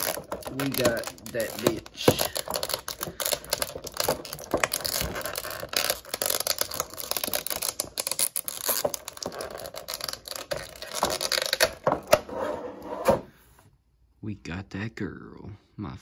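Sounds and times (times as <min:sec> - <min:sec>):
plastic packaging crinkling: 0:00.0 - 0:12.2.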